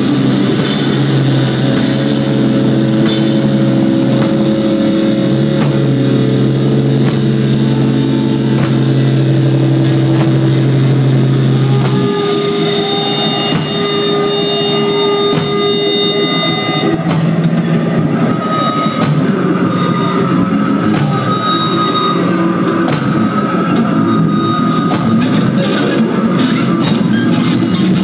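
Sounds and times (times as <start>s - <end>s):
rock band droning bass and guitar: 0.0s - 28.0s
sharp drum hit: 10.0s - 10.8s.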